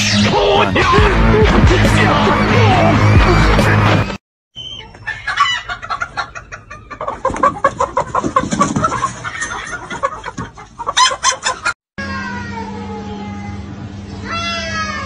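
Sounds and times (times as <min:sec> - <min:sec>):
chickens clucking and cackling: 0:04.6 - 0:11.8.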